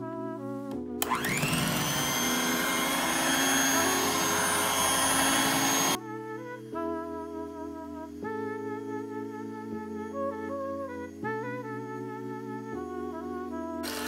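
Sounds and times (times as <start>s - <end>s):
electric hand mixer whining: 1.0s - 6.0s.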